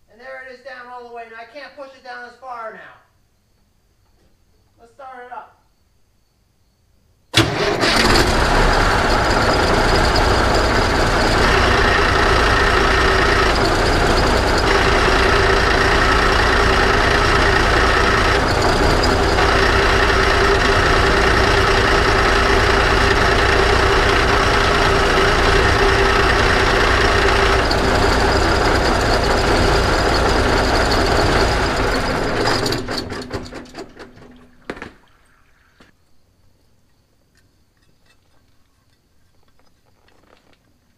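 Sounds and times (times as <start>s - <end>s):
dump truck engine running: 7.4s - 34.4s.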